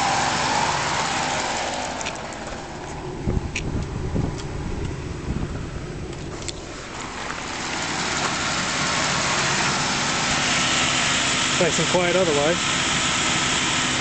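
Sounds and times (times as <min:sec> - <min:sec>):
car engine idling: 0:00.0 - 0:14.0
rushing engine accessory noise: 0:00.7 - 0:05.0, 0:06.0 - 0:12.5.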